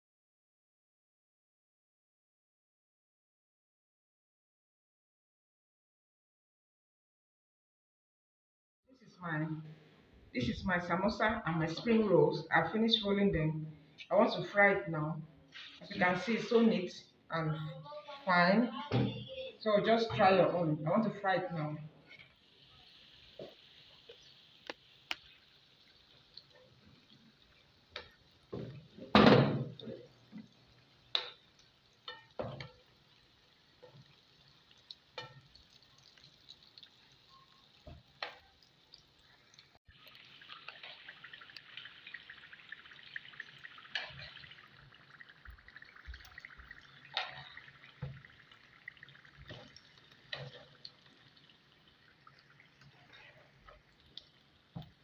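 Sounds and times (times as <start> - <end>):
food deep-frying in oil: 15.4 - 16.9, 18.0 - 55.0.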